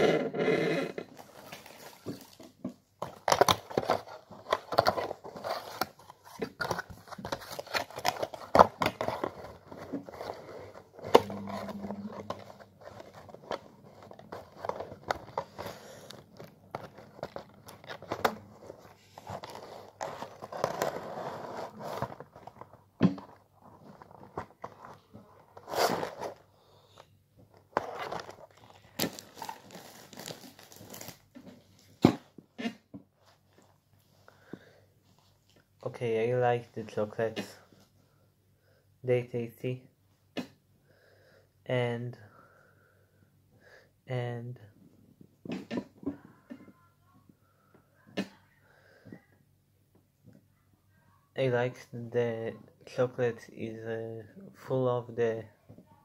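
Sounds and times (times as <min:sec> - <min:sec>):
packaging crinkling and rustling: 0:01.1 - 0:26.4, 0:27.5 - 0:32.0.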